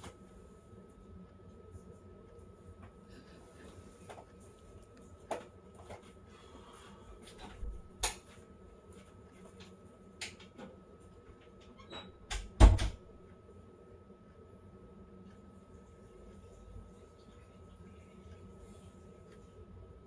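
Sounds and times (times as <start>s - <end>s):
scattered clicks and knocks: 7.3s - 8.4s, 9.0s - 13.0s.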